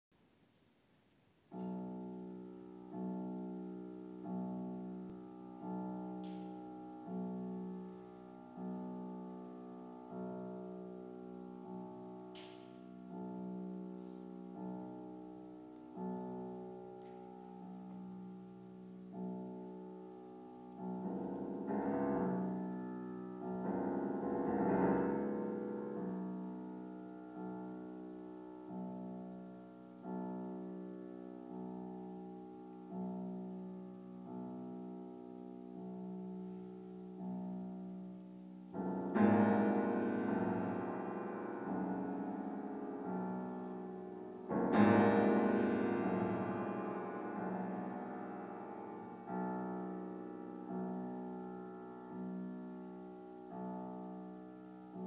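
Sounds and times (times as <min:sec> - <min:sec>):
grand piano chords: 0:01.4 - 0:55.0.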